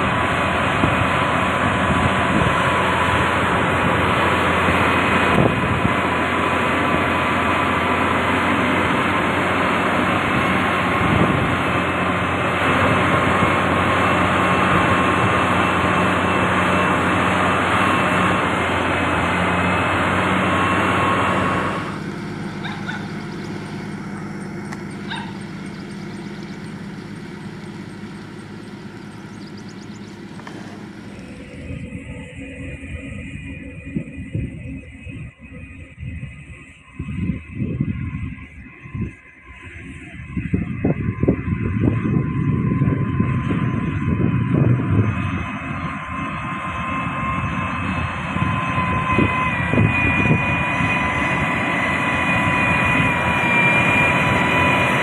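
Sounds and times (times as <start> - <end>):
diesel machinery engine drone: 0.0 - 55.0.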